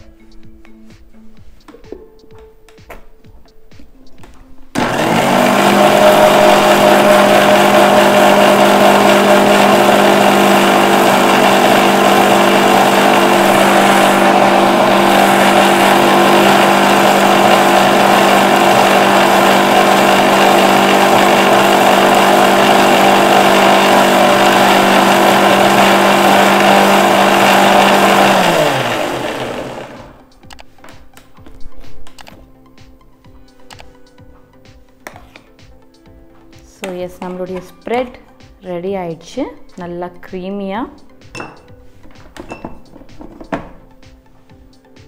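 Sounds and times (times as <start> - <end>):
mixer grinder motor whining: 4.8 - 30.3.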